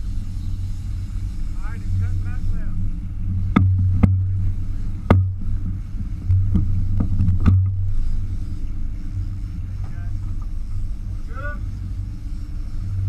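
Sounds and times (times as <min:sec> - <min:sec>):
boat engine rumbling: 0:00.0 - 0:13.0
sharp knocks: 0:05.0 - 0:05.4.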